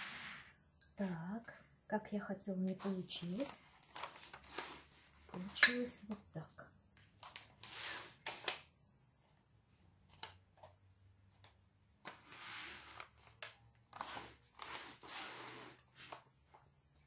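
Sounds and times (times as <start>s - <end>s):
paper molds rustling and sliding: 11.4s - 16.8s.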